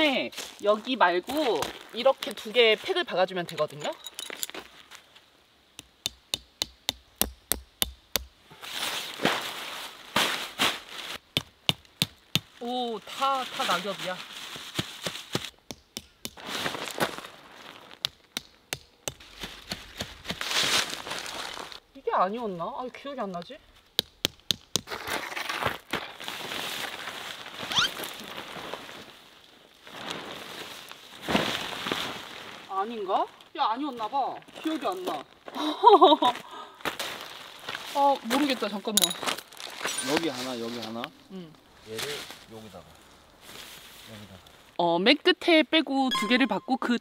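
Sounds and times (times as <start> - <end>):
hammer striking tent peg: 5.8 - 8.4, 15.6 - 16.4
canvas tarp rustling: 8.5 - 11.2, 12.6 - 15.5, 16.4 - 18.0, 19.2 - 21.8, 24.9 - 35.3, 36.8 - 44.8
fabric dragged over dry leaves: 8.6 - 11.2, 12.7 - 15.5, 16.4 - 18.0, 20.3 - 21.8, 24.9 - 35.3, 36.9 - 38.8, 39.4 - 41.1, 41.7 - 44.8.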